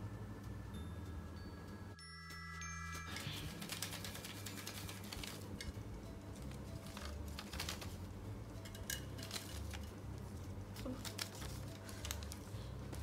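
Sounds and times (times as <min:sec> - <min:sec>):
paper rustling and crinkling: 0:03.1 - 0:05.8, 0:06.4 - 0:08.1, 0:08.8 - 0:13.0.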